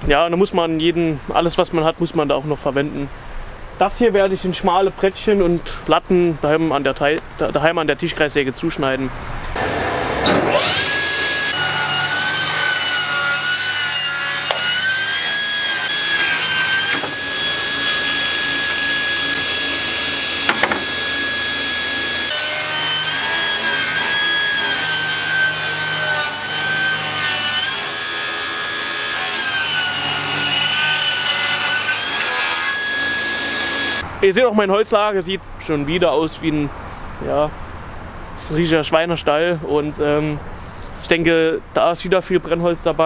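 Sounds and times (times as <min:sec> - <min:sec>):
table saw blade whine: 0:09.6 - 0:34.0.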